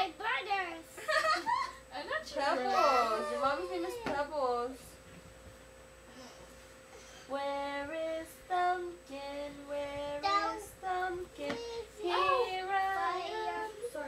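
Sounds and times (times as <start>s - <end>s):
boy singing unaccompanied: 7.4s - 14.0s.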